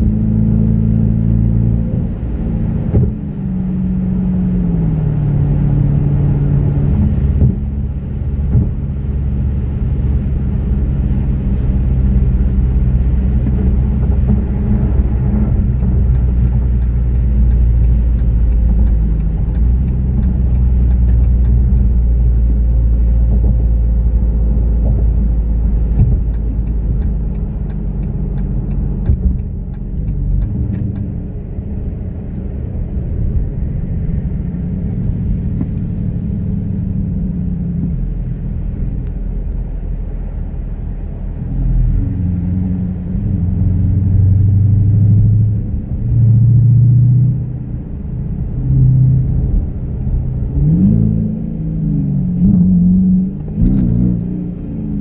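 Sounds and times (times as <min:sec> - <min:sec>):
car engine drone: 0:00.0 - 0:55.0
road noise: 0:00.0 - 0:55.0
light ticking: 0:15.5 - 0:21.8.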